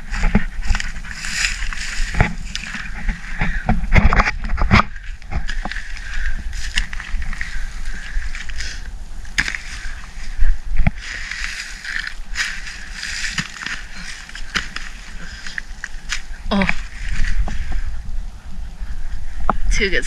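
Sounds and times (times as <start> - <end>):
hoe chopping and scraping soil: 0.0 - 5.9, 8.4 - 10.0, 10.8 - 16.3.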